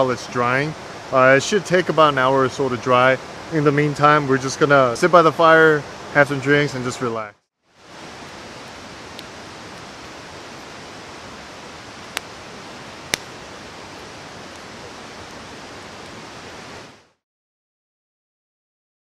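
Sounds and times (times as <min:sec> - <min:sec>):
campfire hissing: 0:00.0 - 0:07.0, 0:07.7 - 0:17.2
fire crackling pops: 0:07.9 - 0:16.8.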